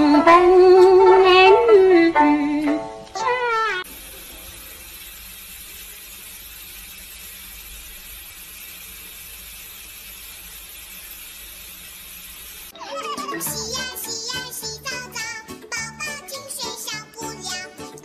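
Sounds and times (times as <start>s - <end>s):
faucet running into sink: 3.8s - 12.8s.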